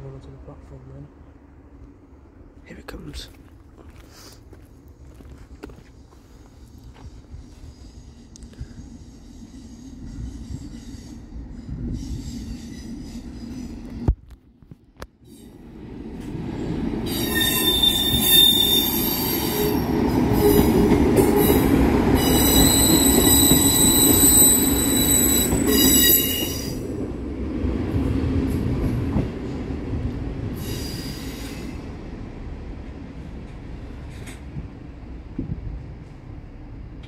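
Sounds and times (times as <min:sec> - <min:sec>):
low train rumble: 0:00.0 - 0:37.0
train wheels squealing: 0:05.9 - 0:13.9, 0:17.1 - 0:21.6, 0:22.2 - 0:26.8, 0:30.6 - 0:31.9.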